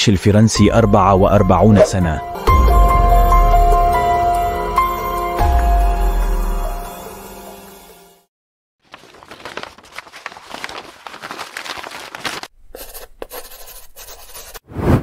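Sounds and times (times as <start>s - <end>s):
background music: 0.0s - 8.3s
paper rustling and crumpling: 8.8s - 12.5s.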